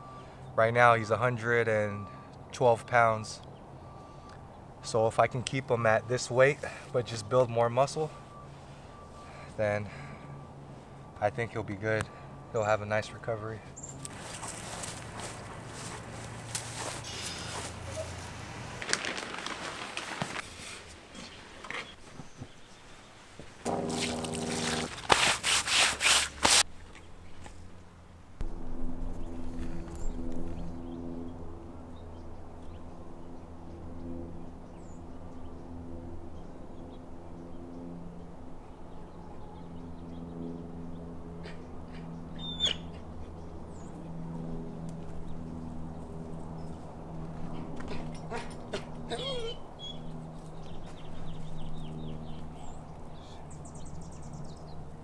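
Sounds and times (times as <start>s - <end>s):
push broom scrubbing plastic tarp: 16.1s - 20.9s, 23.7s - 26.6s
steady hum: 23.6s - 26.5s, 27.5s - 47.9s
bird chirps: 41.0s - 43.0s, 49.2s - 54.8s.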